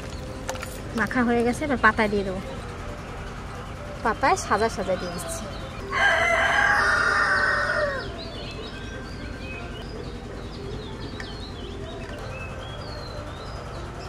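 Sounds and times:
small birds chirping: 0.0s - 14.0s
rooster crowing: 4.5s - 8.2s.

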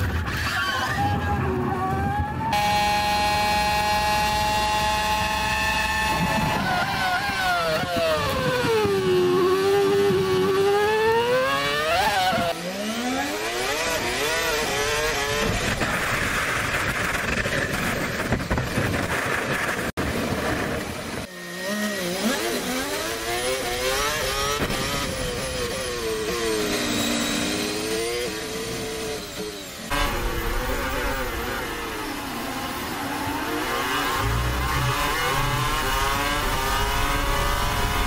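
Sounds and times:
racing car engine revving: 1.8s - 16.3s, 21.4s - 38.0s
rushing wind: 4.8s - 12.6s, 13.5s - 21.3s.

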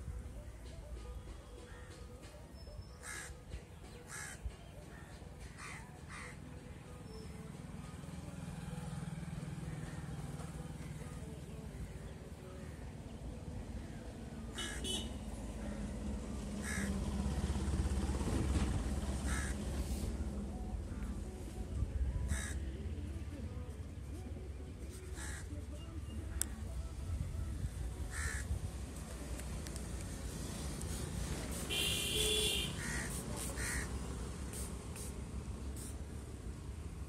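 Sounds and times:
birds calling: 1.4s - 7.3s, 28.1s - 28.5s.

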